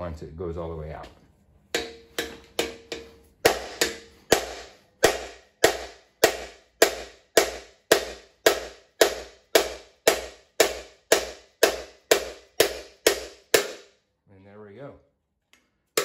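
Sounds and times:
hammer blows on metal: 1.8s - 13.9s.

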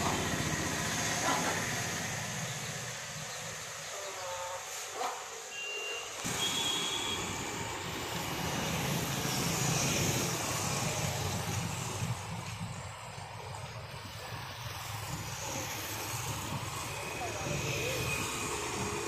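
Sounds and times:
short high beeps: 5.5s - 6.9s.

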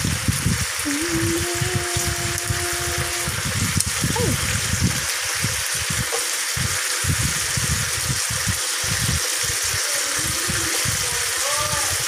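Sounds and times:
chicken sizzling on grill pan: 0.0s - 12.0s.

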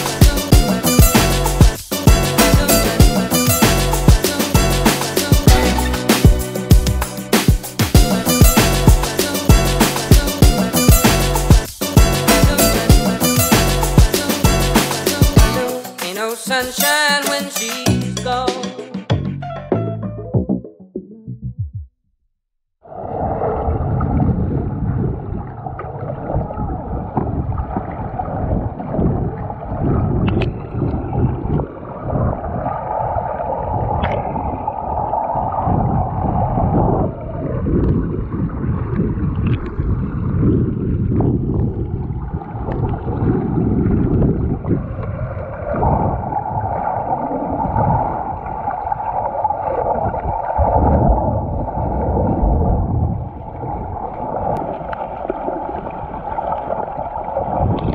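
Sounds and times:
muffled underwater rushing and gurgling: 22.8s - 57.9s.

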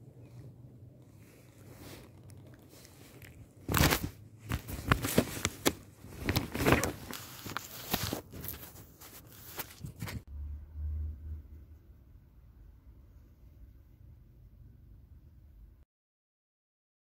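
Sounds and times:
fur rubbing on microphone: 1.2s - 10.2s.

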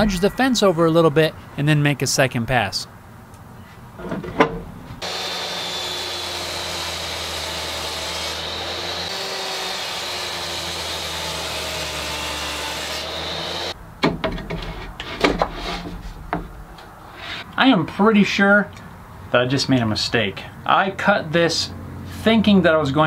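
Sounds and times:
table saw cutting wood: 5.0s - 13.8s.

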